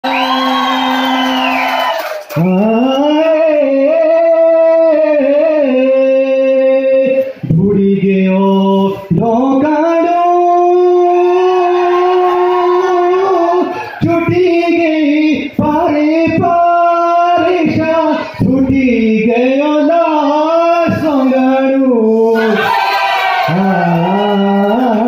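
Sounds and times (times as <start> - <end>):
person singing into microphone: 2.3 - 22.6, 23.4 - 25.0.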